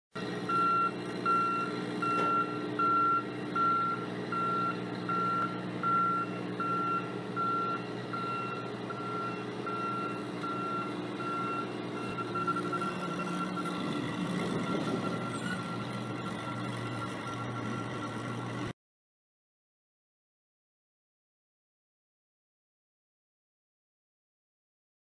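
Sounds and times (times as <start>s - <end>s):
truck engine running: 0.2s - 18.7s
truck reversing alarm beeping: 0.2s - 18.7s.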